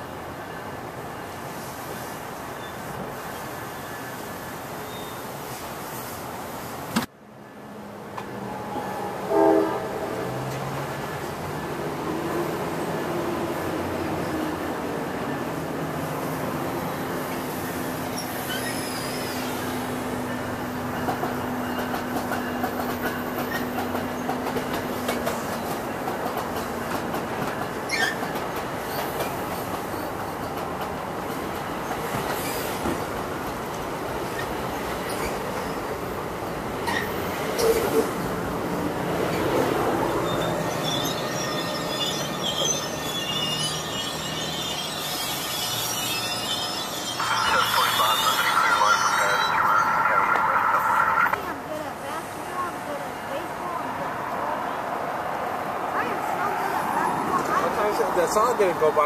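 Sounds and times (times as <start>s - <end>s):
train coaches rolling past: 0.0s - 59.0s
train wheels squealing: 1.9s - 5.6s, 17.4s - 20.0s, 27.8s - 30.4s, 31.8s - 33.0s, 34.2s - 35.8s, 36.8s - 38.1s, 39.3s - 50.0s
high wavering squeal: 40.2s - 51.4s.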